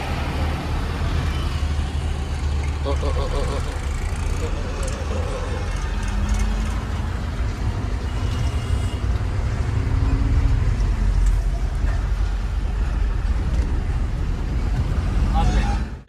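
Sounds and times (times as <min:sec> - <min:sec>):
truck engine and road rumble: 0:00.0 - 0:16.0.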